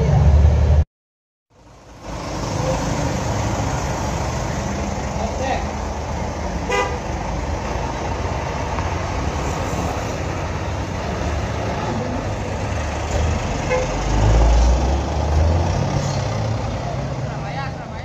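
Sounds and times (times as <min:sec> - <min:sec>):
coach diesel engines passing: 0:01.5 - 0:18.0
road traffic rumble: 0:01.5 - 0:18.0.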